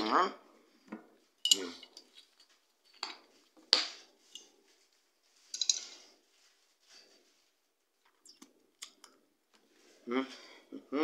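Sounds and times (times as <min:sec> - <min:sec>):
spoon and glass bottle clinking: 0:01.4 - 0:04.5.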